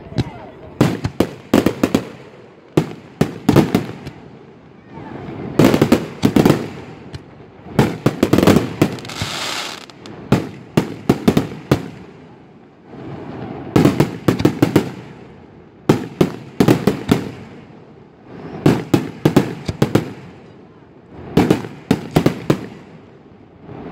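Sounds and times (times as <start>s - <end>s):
fireworks bursting with sharp bangs: 0.0s - 23.9s
fireworks hissing: 5.2s - 12.3s.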